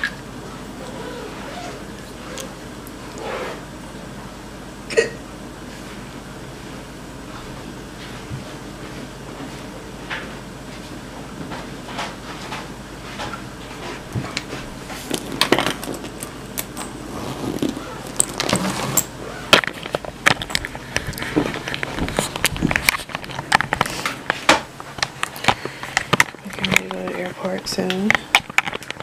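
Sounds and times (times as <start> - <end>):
faint steady hum: 0.0 - 29.0
bags rustling and knocking: 15.0 - 24.6.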